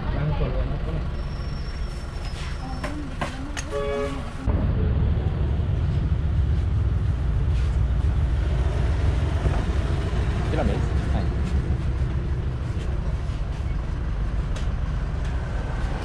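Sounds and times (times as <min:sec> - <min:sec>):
low rumble: 0:04.3 - 0:16.0.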